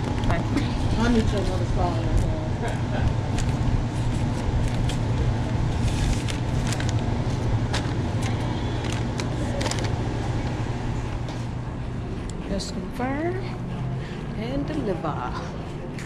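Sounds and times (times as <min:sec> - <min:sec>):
steady low hum: 0:00.0 - 0:16.0
paper bag crinkling: 0:03.3 - 0:10.0.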